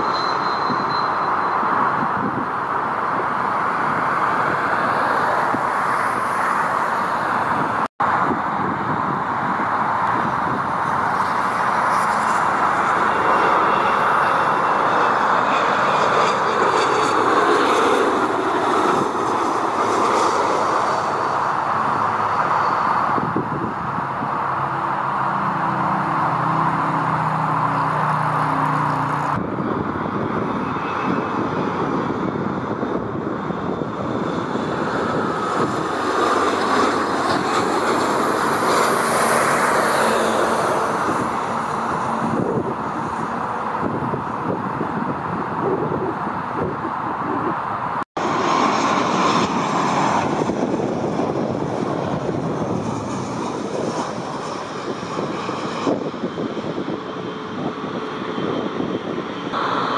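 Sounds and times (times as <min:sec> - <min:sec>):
jet engines rushing: 0:00.0 - 0:59.9
high whines sliding down: 0:59.6 - 0:59.9.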